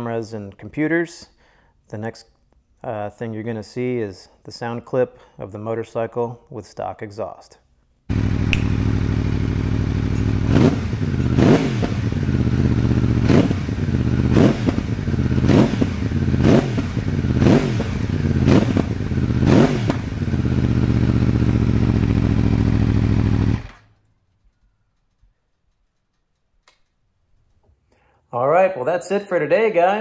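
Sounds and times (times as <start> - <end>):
motorcycle engine revving: 8.1 - 24.0.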